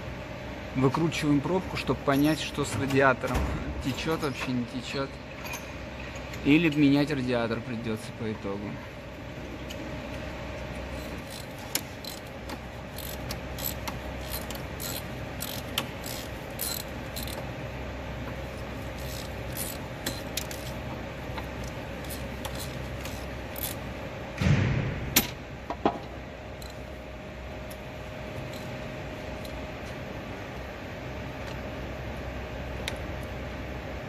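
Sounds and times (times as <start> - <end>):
workshop hum: 0.0 - 34.0
hand tools clicking and scraping: 10.9 - 17.5, 18.2 - 23.8
tool clatter: 18.2 - 23.8.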